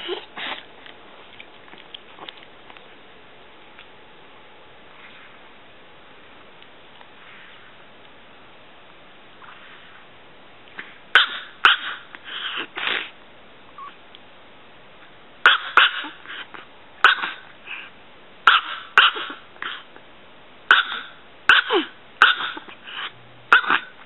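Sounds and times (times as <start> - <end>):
small dog yapping: 11.1 - 13.1, 15.4 - 16.3, 17.0 - 17.5, 18.4 - 19.8, 20.7 - 24.0.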